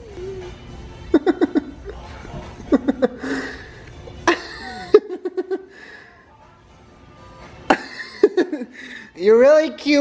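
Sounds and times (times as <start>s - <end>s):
person laughing: 1.1s - 2.0s, 2.6s - 3.6s, 4.2s - 5.7s, 7.7s - 8.8s.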